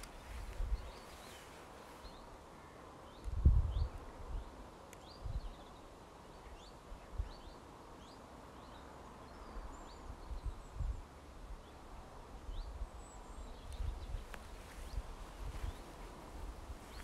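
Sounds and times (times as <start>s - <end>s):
small birds chirping: 0.0s - 17.0s
steady outdoor hiss: 0.0s - 17.0s.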